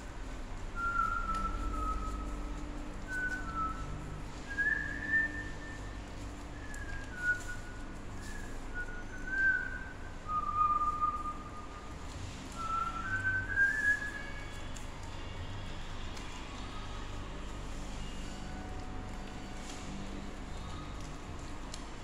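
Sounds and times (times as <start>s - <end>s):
person whistling a slow tune: 0.7s - 14.7s.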